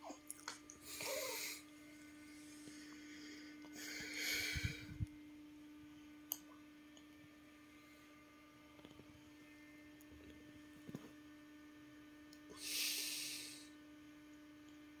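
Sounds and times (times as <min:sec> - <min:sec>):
low electrical hum: 0:00.0 - 0:15.0
long breath out: 0:02.4 - 0:05.0.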